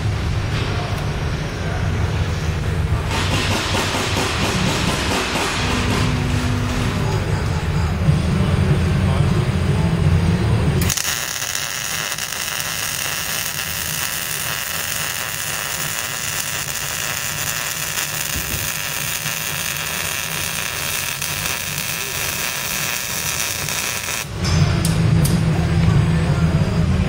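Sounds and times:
welding arc crackling: 10.8 - 24.4.

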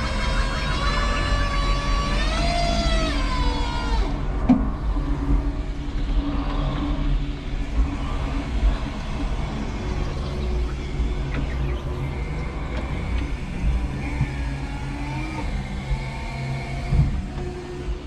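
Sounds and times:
electric motor whining: 0.0 - 4.2, 10.4 - 18.0
low motor hum: 0.0 - 18.0.

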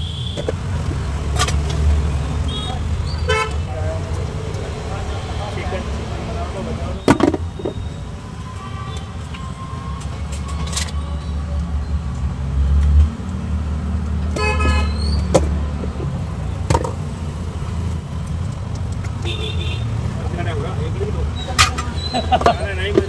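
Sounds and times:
road traffic rumble: 0.0 - 23.0
vehicle horn honking: 2.5 - 3.6, 14.4 - 15.0, 19.2 - 19.9.

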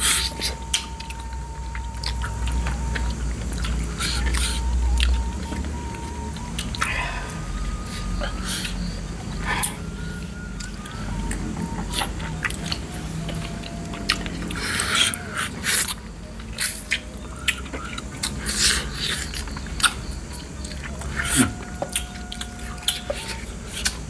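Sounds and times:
wet eating mouth sounds: 0.0 - 9.9
faint background music: 0.0 - 24.0.

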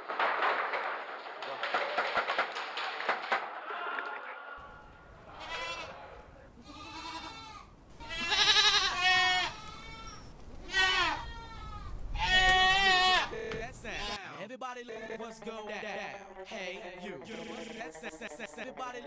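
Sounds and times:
livestock bleating: 4.6 - 14.4, 15.9 - 18.0.

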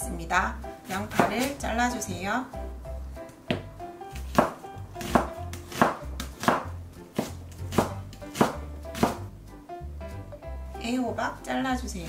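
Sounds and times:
knife chopping on cutting board: 0.8 - 1.8, 3.5 - 9.3.

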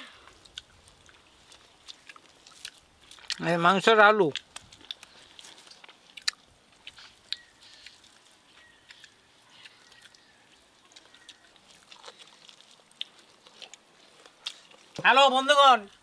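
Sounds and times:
people eating with mouth smacks: 0.0 - 15.0
faint bird chirps: 7.2 - 11.6.

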